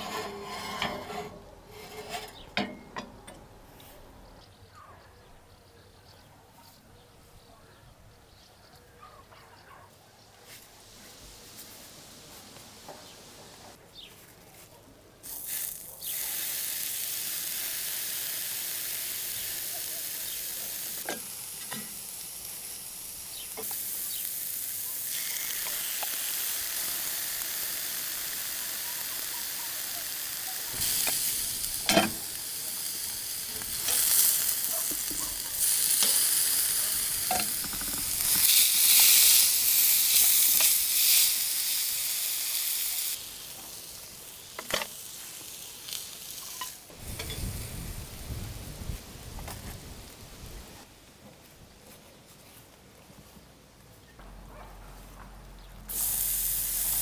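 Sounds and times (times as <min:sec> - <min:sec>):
steak sizzling on hot iron: 0:15.2 - 0:50.6, 0:55.9 - 0:57.0.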